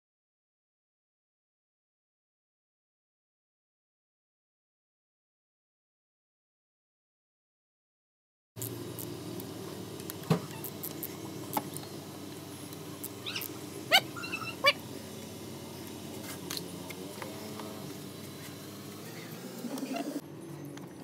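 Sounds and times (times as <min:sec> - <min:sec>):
steady low hum: 0:08.6 - 0:21.0
high-pitched rising chirps: 0:13.0 - 0:14.8.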